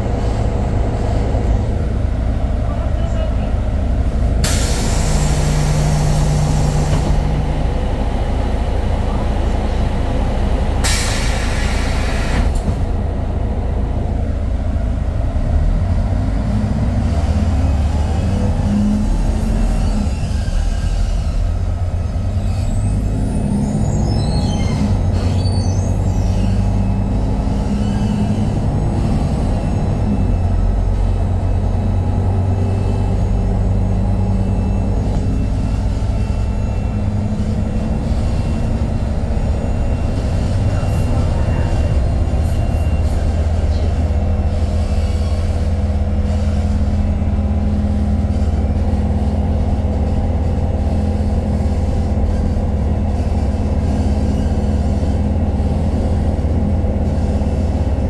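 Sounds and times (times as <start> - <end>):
bus engine and road rumble: 0.0 - 58.0
faint high squeaks: 22.3 - 28.6.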